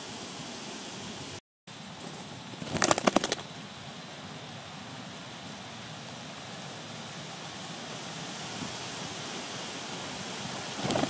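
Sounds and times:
outdoor background hiss: 0.0s - 11.0s
bird wing flaps: 1.9s - 3.7s, 10.6s - 11.0s.

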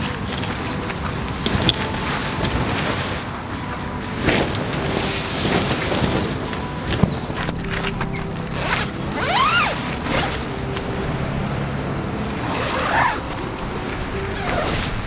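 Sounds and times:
rustling fabric: 0.0s - 11.6s
tent door unzipping: 0.0s - 11.7s, 12.3s - 15.0s
soft background music: 0.0s - 15.0s
short squeaky creaks: 6.0s - 10.6s.

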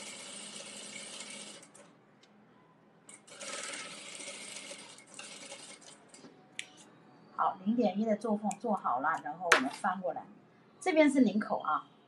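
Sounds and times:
sewing machine stitching: 0.0s - 1.9s, 3.1s - 6.2s.

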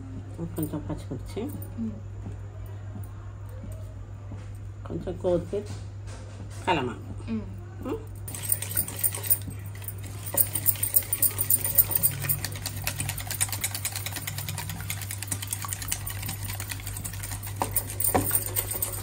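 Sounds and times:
whisk clicking in metal bowl: 10.4s - 19.0s.

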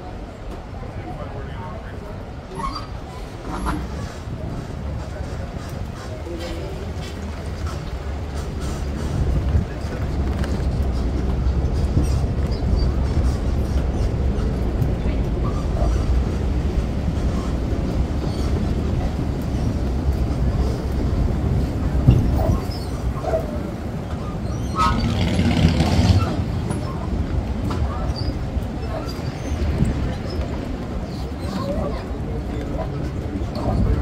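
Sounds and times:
tram rumbling over wooden planks: 0.0s - 34.0s.

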